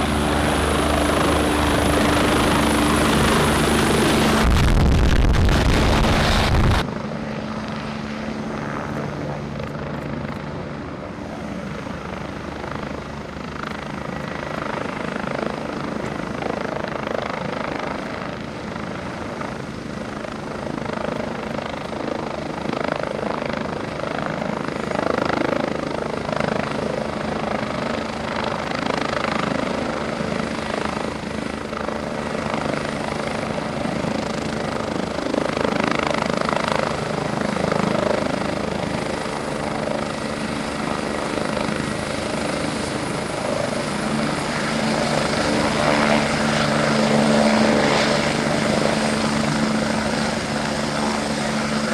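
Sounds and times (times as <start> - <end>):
helicopter rotor and engine: 0.0 - 51.9.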